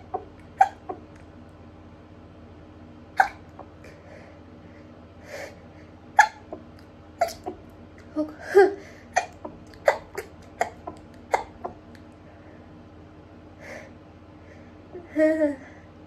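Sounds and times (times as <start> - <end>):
voiced breath: 3.8 - 6.0, 13.6 - 14.9.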